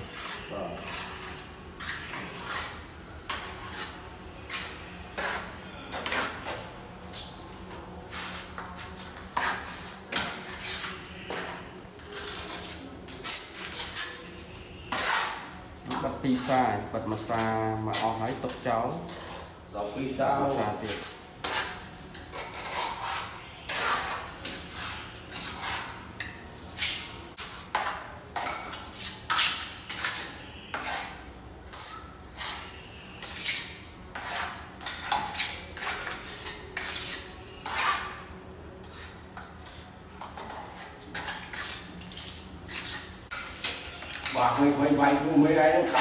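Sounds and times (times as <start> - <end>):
trowel scraping wet mortar: 0.0 - 7.4, 14.9 - 19.5, 20.8 - 26.0, 26.8 - 38.2.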